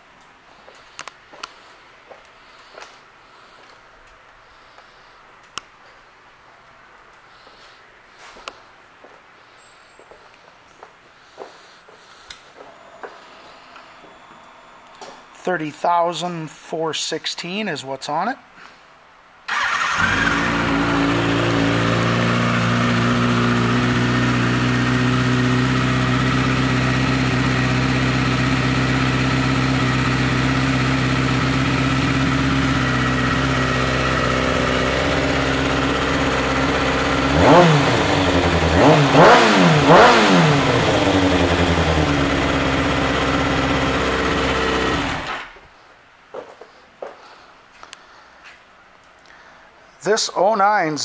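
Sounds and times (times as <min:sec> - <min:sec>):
motorcycle engine idling and revving: 0:19.5 - 0:45.5.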